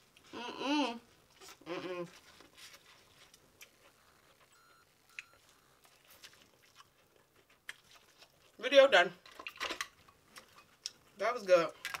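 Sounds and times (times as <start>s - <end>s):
faint chewing: 1.0s - 8.6s, 9.2s - 11.2s.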